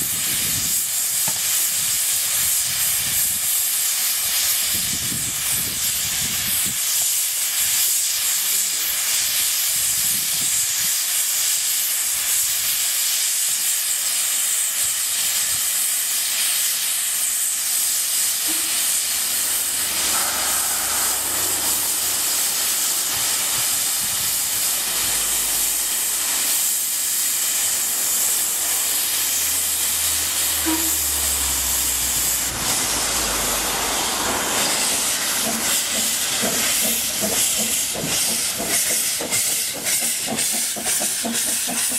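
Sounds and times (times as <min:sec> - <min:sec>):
steam hissing: 0:00.0 - 0:41.9
low rumble: 0:18.3 - 0:35.2.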